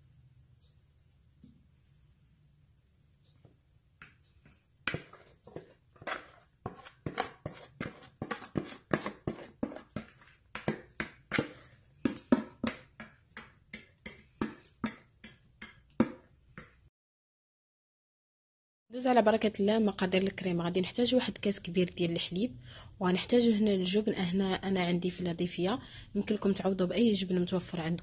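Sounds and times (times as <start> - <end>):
spatula scraping a bowl: 4.9 - 16.8.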